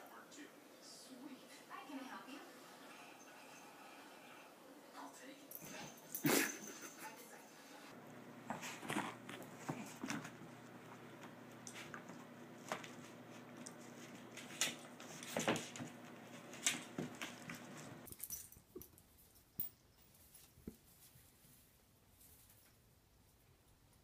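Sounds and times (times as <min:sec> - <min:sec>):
dogs scuffling: 0:08.0 - 0:18.1.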